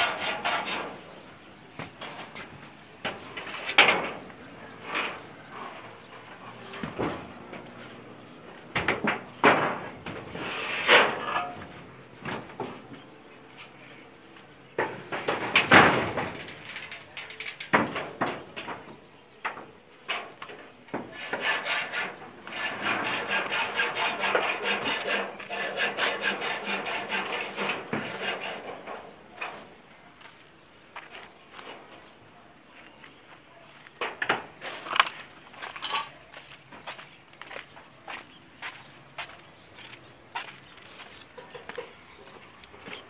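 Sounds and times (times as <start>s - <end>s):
knocks and bangs on metal roof: 1.8s - 5.2s, 6.5s - 7.7s, 8.6s - 13.0s, 14.7s - 29.8s.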